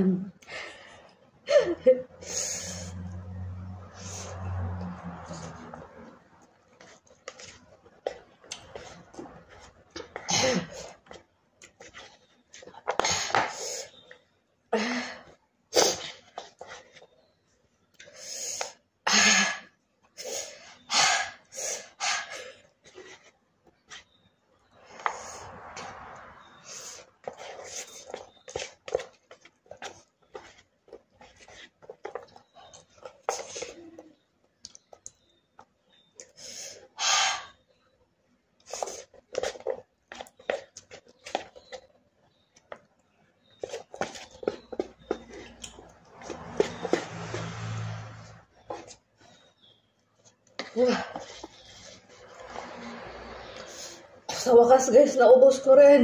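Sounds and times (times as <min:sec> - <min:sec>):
wet chewing: 0:27.0 - 0:36.3, 0:38.6 - 0:47.5.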